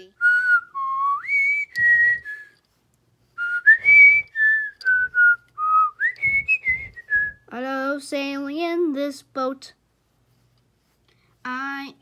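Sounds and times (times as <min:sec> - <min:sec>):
person whistling a tune: 0:00.2 - 0:02.6, 0:03.4 - 0:07.5.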